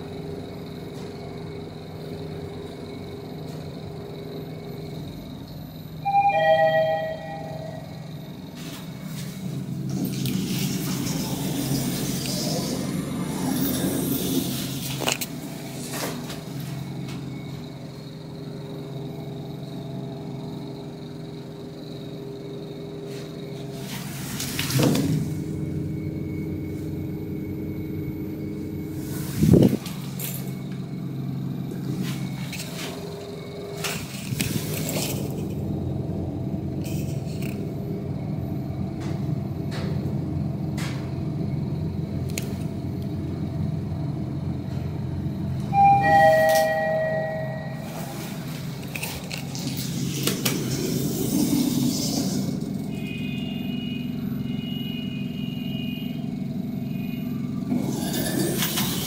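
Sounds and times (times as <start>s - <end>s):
elevator car humming: 0.0s - 59.0s
two-tone arrival chime: 6.0s - 8.0s, 45.7s - 48.2s
elevator doors sliding open: 6.0s - 17.9s, 23.1s - 27.3s, 28.3s - 42.8s, 44.6s - 53.0s, 57.7s - 59.0s.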